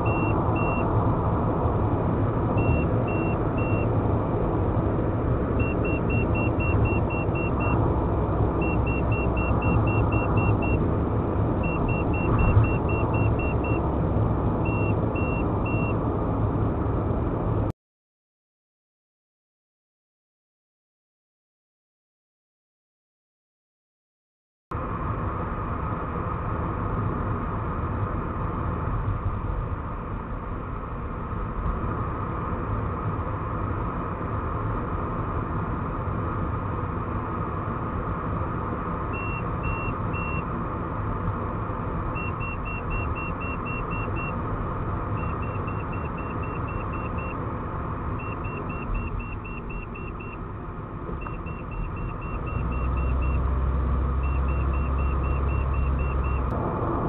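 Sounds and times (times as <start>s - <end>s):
electronic warning beeps: 0.0s - 0.9s, 2.6s - 3.9s, 5.6s - 7.8s, 8.6s - 10.8s, 11.6s - 13.8s, 14.6s - 16.0s, 39.2s - 40.4s, 42.2s - 44.4s, 45.2s - 47.4s, 48.2s - 50.4s, 51.2s - 53.4s, 54.2s - 56.5s
car road and engine noise: 0.0s - 17.8s, 24.7s - 57.0s.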